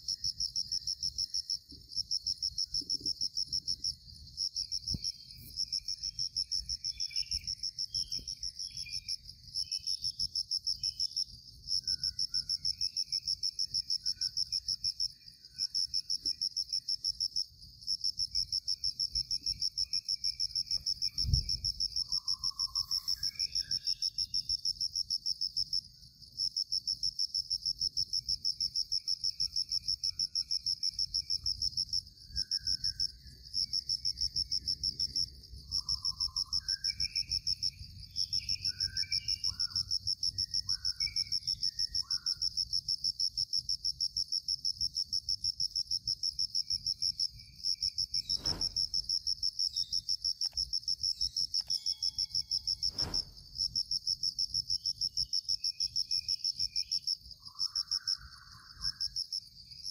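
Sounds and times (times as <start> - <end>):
faint chirping calls: 0.0 - 43.0, 46.0 - 59.9
insect pulsing trill: 0.0 - 59.9
low thump: 48.3 - 49.3, 52.9 - 53.8.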